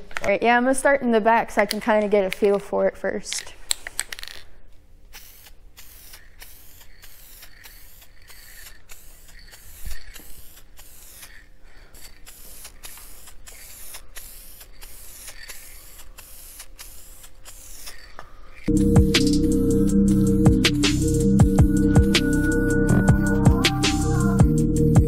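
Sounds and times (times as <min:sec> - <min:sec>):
aerosol spray hissing: 0:05.1 - 0:25.0.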